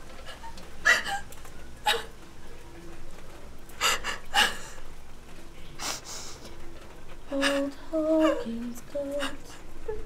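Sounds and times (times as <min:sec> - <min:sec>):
woman crying in sobs: 0:00.2 - 0:02.2, 0:03.8 - 0:04.9.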